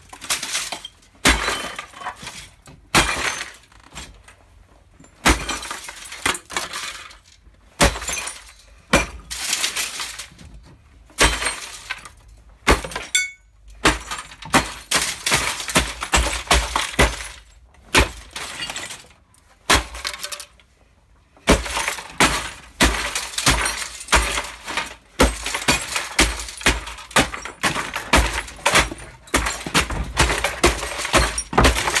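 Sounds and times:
plastic and glass crunching: 0.0 - 4.2, 5.0 - 20.6, 21.4 - 32.0
wooden block pounding: 25.2 - 32.0.

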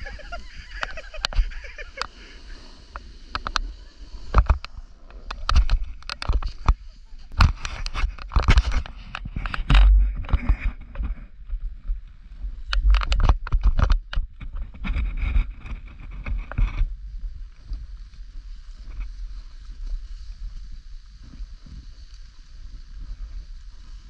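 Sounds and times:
snowboard sliding hiss: 0.0 - 5.5, 6.3 - 7.9, 16.9 - 24.0
snowboard clattering on snow: 0.0 - 24.0.

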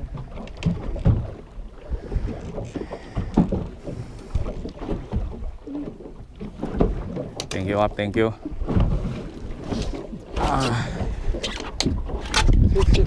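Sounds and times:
water slapping against boat hull: 0.0 - 13.0
wind rumbling on microphone: 8.5 - 13.0.

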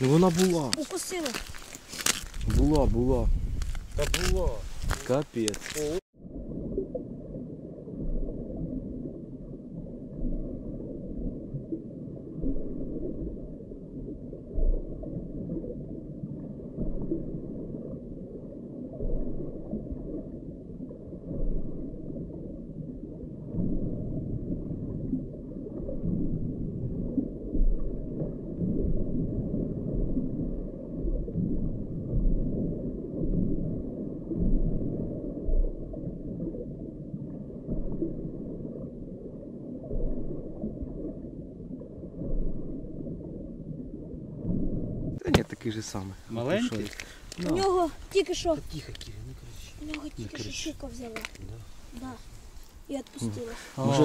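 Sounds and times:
muffled underwater rumble: 2.3 - 54.0
dull low thump: 28.6 - 36.0.

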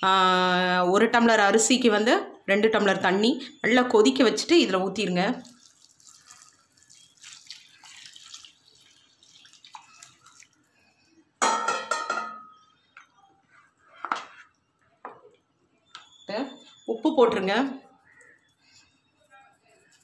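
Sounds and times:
water pouring into a pan: 5.4 - 11.6
spoon knocking against a pan: 11.4 - 12.6.

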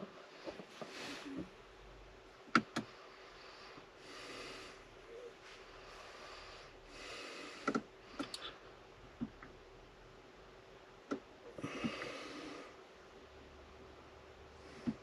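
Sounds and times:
soft breathing: 0.0 - 1.6, 2.8 - 8.8, 11.5 - 12.9, 14.5 - 15.0.

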